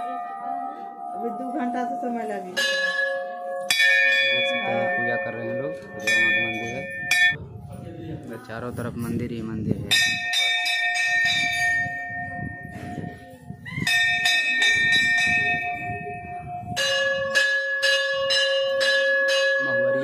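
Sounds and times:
brass bell ringing: 0.0 - 7.4, 9.9 - 13.2
lower-pitched bell ringing: 0.0 - 7.4, 9.9 - 20.0.

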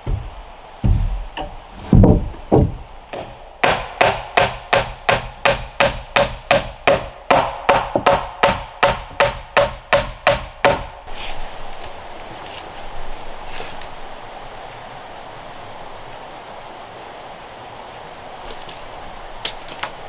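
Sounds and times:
lumber thudding onto wood: 0.0 - 4.9
hammer driving nails: 1.0 - 11.0.

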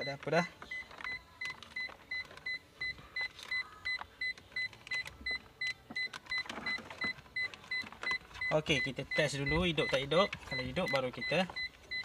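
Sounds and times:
electronic warning chime beeping: 5.3 - 12.0.

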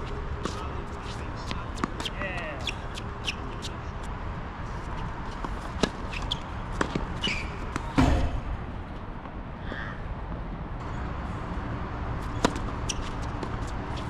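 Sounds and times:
tennis balls bouncing and struck: 0.0 - 3.9, 4.9 - 8.5, 12.2 - 14.0
short squeaks: 5.7 - 8.0, 12.3 - 14.0
loud thump: 7.9 - 8.5.

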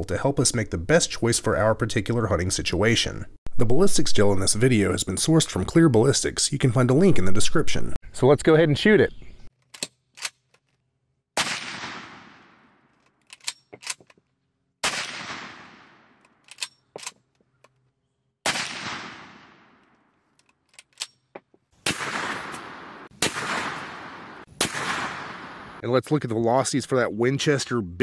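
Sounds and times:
metallic lever clicks: 9.6 - 10.7, 13.0 - 14.2, 16.2 - 17.9, 20.3 - 21.3
rifle shots: 11.4 - 12.9, 14.8 - 16.2, 18.4 - 19.9, 21.8 - 25.8.

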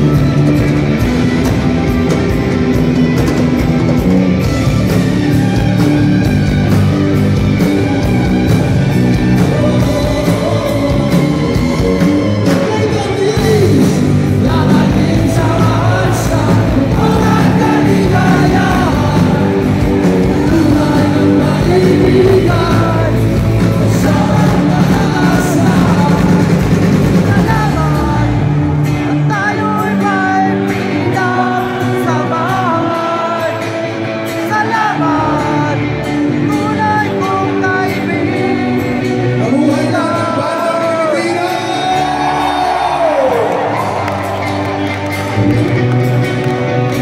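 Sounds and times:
drum kit: 0.0 - 33.3
electric guitars: 0.0 - 47.0
male lead vocal: 9.1 - 44.0.

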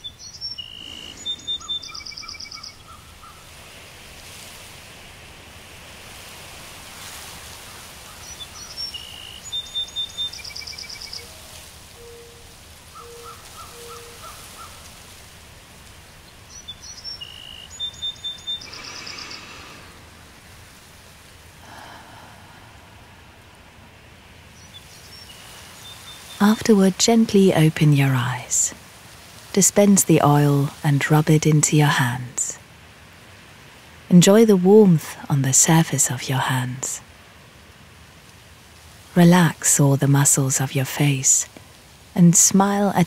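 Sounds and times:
bird chirps and trills: 0.0 - 3.4, 8.2 - 11.4, 16.2 - 19.5, 24.6 - 26.4
steady outdoor hiss: 0.0 - 43.0.

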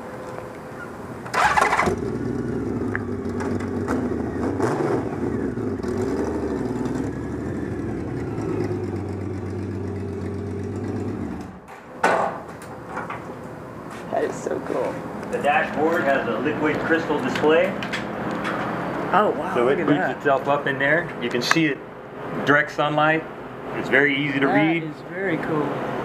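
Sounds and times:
motorcycle engine running at low speed: 0.7 - 11.7.

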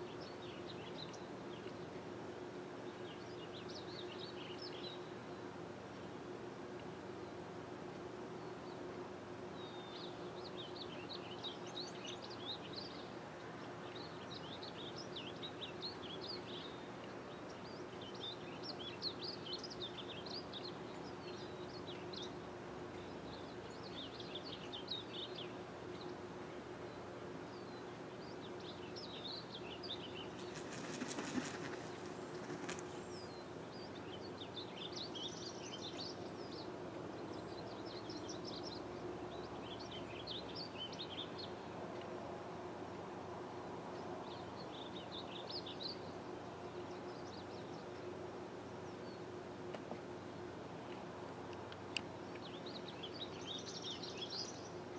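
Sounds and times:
songbird singing warbled phrases: 9.6 - 41.7
rustling with clicks: 30.4 - 33.0.

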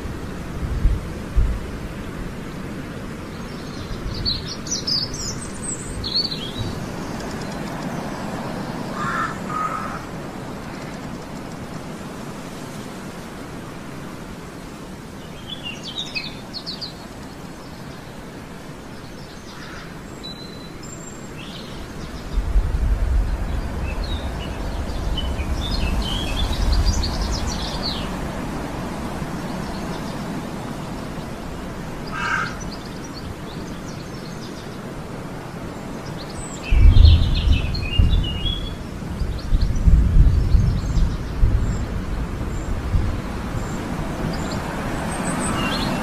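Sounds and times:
outdoor hiss: 0.0 - 36.7
small birds chirping: 3.2 - 12.1, 15.2 - 46.0.

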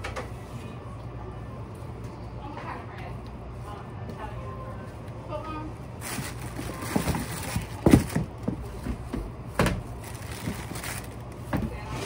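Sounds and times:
plastic bags rustling: 5.9 - 11.9.

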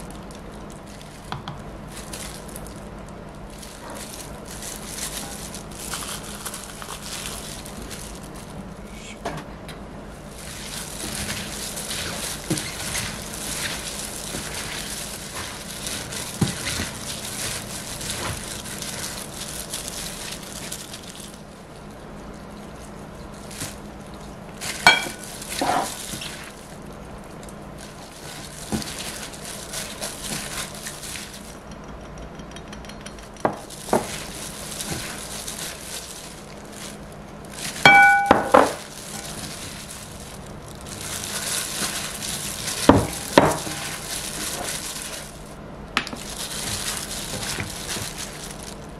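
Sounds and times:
wet rustling of tossed vegetables: 0.0 - 8.8, 10.0 - 31.7, 33.6 - 48.9
sharp glass clinks: 37.9 - 38.5.

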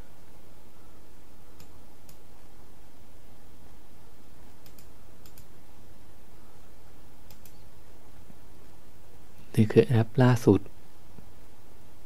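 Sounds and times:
steady low hum: 0.0 - 12.0
computer mouse clicks: 1.6 - 2.3, 4.5 - 5.5, 7.2 - 7.6.

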